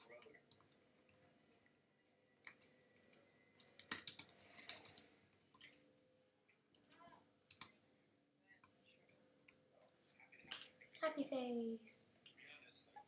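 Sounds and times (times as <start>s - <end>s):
faint computer keyboard typing: 0.0s - 7.8s, 8.6s - 9.6s.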